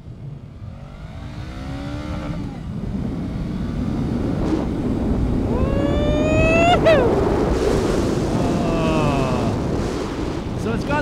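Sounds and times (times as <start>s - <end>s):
motorcycle engine revving: 0.0s - 6.2s
wind rush: 0.0s - 11.0s.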